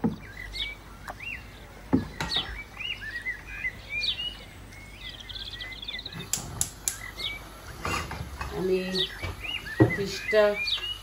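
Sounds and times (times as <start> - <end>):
bird chirping and twittering: 0.0 - 11.0.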